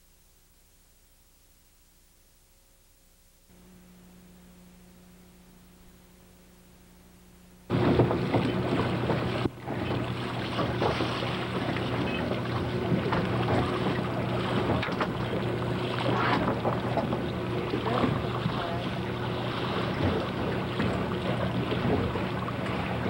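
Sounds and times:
faint steady hum: 0:00.0 - 0:23.0
water washing and lapping: 0:07.7 - 0:23.0.

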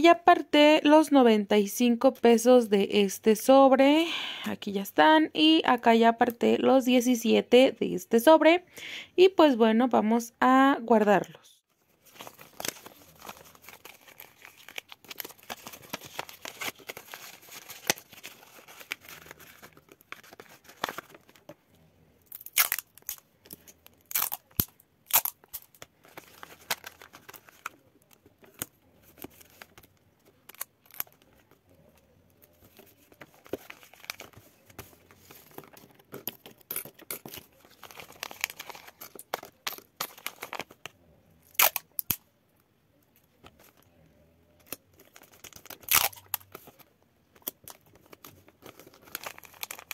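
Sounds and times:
paper rustling and crinkling: 0:11.7 - 0:21.6, 0:25.7 - 0:40.9, 0:44.8 - 0:49.9.

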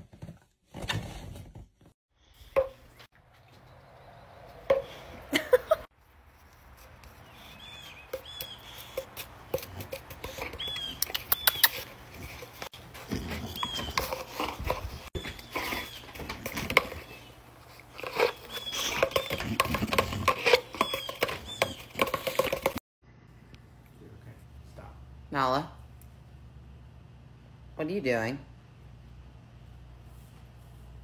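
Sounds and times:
dog noises: 0:07.6 - 0:22.2
dog biting cardboard tube: 0:17.9 - 0:22.7.

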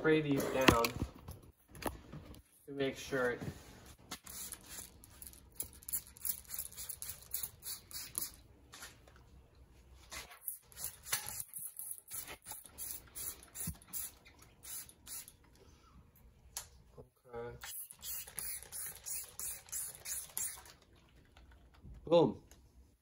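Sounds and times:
spray bottle hissing sprays: 0:04.1 - 0:05.0, 0:05.9 - 0:08.4, 0:10.4 - 0:15.4, 0:17.6 - 0:20.8.

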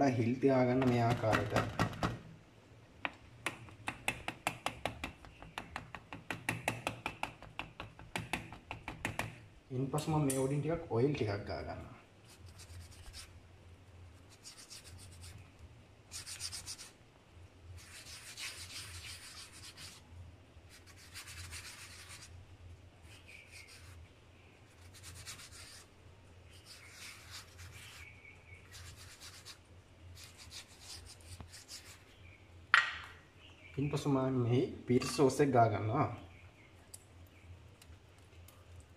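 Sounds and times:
hand rubbing oil on dough: 0:11.2 - 0:13.4, 0:14.0 - 0:17.0, 0:17.7 - 0:22.4, 0:23.0 - 0:32.2.

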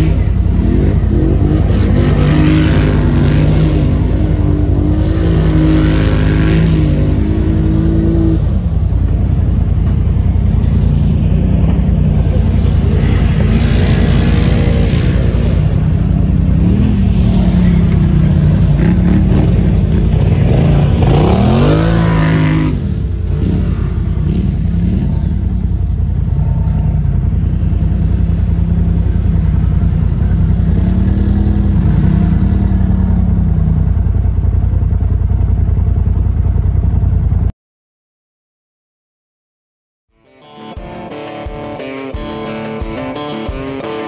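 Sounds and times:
off-road engines revving: 0:00.0 - 0:37.4.

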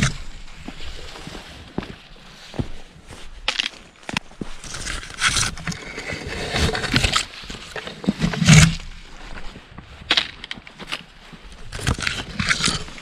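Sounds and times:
footsteps crunching on dirt trail: 0:00.0 - 0:13.0
rustling: 0:00.0 - 0:13.0.

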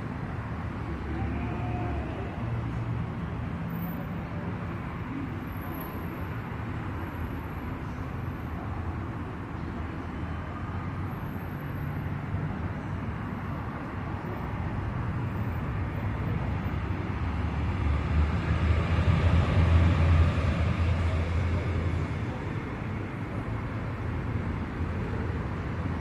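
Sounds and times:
street traffic noise: 0:00.0 - 0:26.0
vehicle passing rumble: 0:16.4 - 0:23.6.

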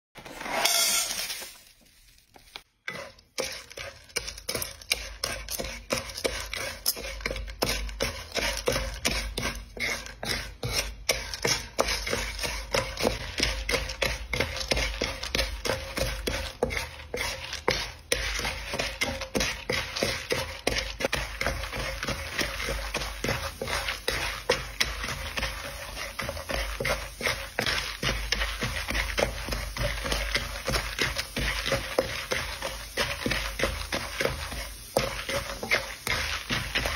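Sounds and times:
spatula scraping popcorn in wok: 0:00.2 - 0:36.9
oil and sugar sizzling: 0:00.3 - 0:36.9.

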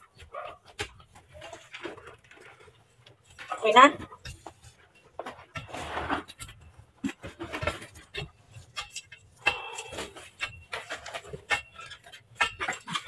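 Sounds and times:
metal pipe jabbing gravelly soil: 0:03.2 - 0:13.0.

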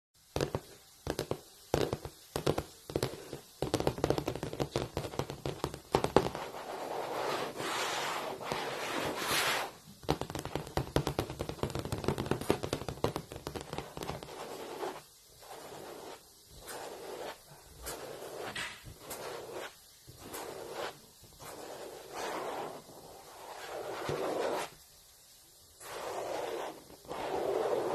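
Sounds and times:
fingernails tapping on blackboard: 0:00.4 - 0:06.5, 0:10.0 - 0:15.0
fingernail scratching blackboard: 0:01.1 - 0:24.8, 0:25.8 - 0:27.9.

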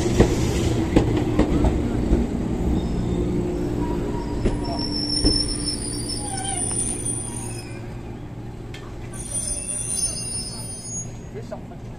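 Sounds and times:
low train hum: 0:00.0 - 0:11.9
train brakes squealing: 0:02.7 - 0:08.4, 0:09.1 - 0:11.4
faint high squeaks: 0:04.1 - 0:08.1, 0:09.1 - 0:11.3.

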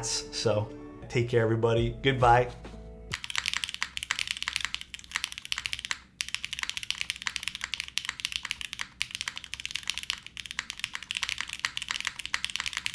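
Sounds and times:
mechanical keyboard typing: 0:03.1 - 0:12.9.

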